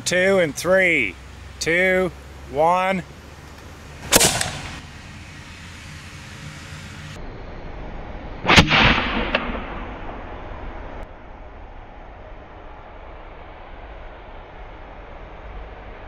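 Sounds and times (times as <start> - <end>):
cannon bang: 4.0 - 4.8, 8.5 - 10.4.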